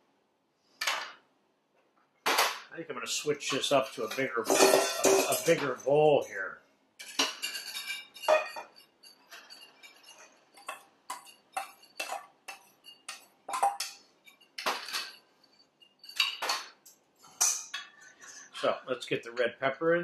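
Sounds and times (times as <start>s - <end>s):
metal bowl clanking on counter: 3.5s - 5.8s, 7.0s - 14.0s
metal spoon clinking on steel bowl: 4.1s - 5.7s, 7.0s - 16.7s.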